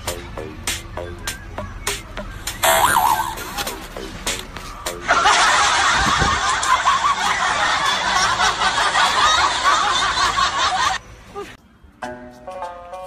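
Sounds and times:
crowd laughing: 4.9s - 11.0s.

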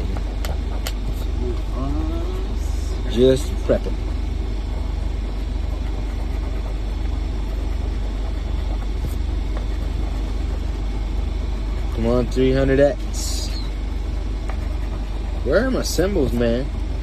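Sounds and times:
steady low hum: 0.0s - 17.0s
coin scratching lottery ticket: 5.2s - 16.8s.

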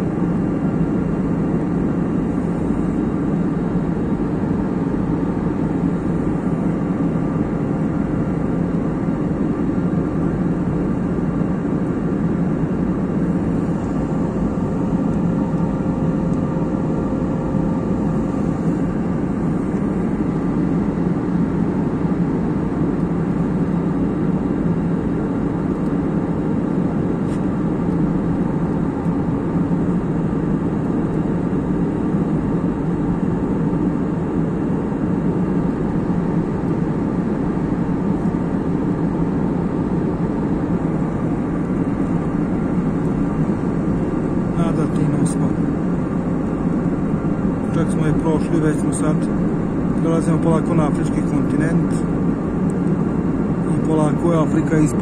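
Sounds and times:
airliner cabin rumble: 0.0s - 55.0s.

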